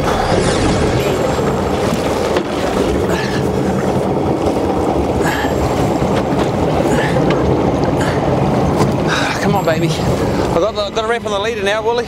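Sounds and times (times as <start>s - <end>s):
outboard motor running slowly: 0.0s - 12.0s
water washing against hull: 0.0s - 12.0s.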